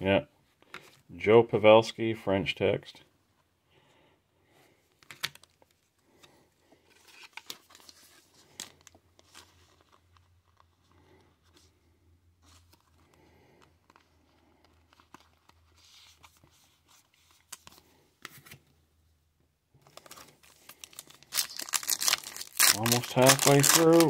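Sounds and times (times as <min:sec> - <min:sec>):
trading cards rustling: 0:05.0 - 0:11.8, 0:12.4 - 0:18.6, 0:19.8 - 0:24.0
foil card pack torn open: 0:19.9 - 0:24.0.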